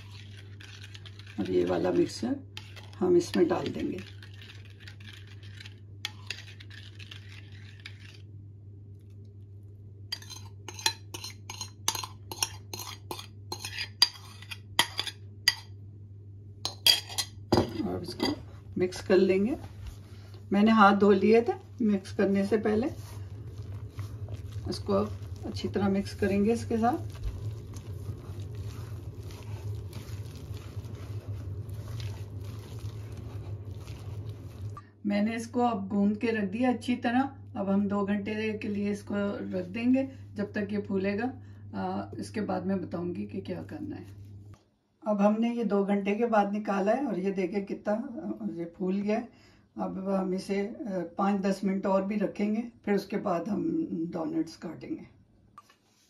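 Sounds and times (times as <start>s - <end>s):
dough squelching: 0.0s - 8.3s, 17.8s - 34.8s
spoon scraping bowl: 0.0s - 8.4s, 10.1s - 15.8s, 16.7s - 18.6s, 19.4s - 34.8s
steady low hum: 0.0s - 44.6s
spoon clinking against bowl: 16.7s - 18.4s.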